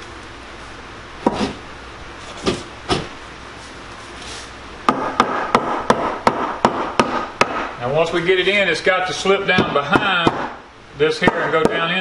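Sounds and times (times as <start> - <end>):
hammer tapping wood: 4.9 - 7.7, 9.6 - 10.6.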